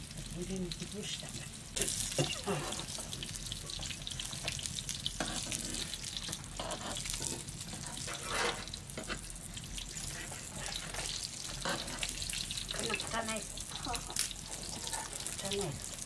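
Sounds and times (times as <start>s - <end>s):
bread sizzling in oil: 0.0s - 16.0s
forks scraping pan: 6.6s - 9.3s.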